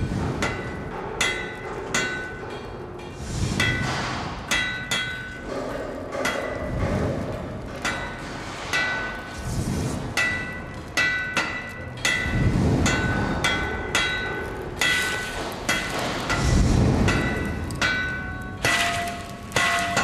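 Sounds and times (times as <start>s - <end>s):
deep swells: 3.1s - 5.6s, 6.4s - 10.9s, 11.9s - 14.8s.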